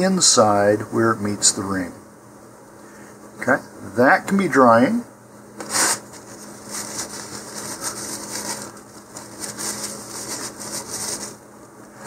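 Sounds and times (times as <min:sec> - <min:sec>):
low electrical hum: 0:00.0 - 0:12.0
rustling and scraping: 0:05.6 - 0:12.0.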